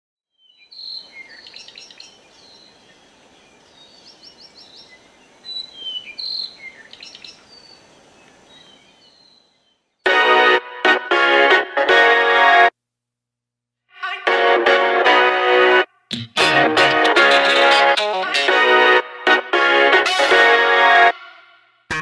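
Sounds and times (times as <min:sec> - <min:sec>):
birds chirping: 0:00.3 - 0:10.3
faint background hiss: 0:00.7 - 0:10.0
loud music: 0:14.3 - 0:22.0.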